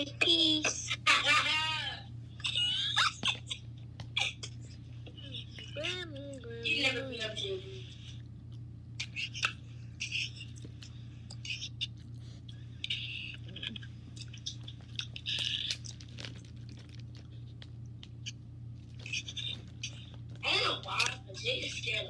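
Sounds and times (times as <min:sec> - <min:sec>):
low hum: 0:00.0 - 0:22.0
chewing mouth sounds: 0:08.4 - 0:20.4.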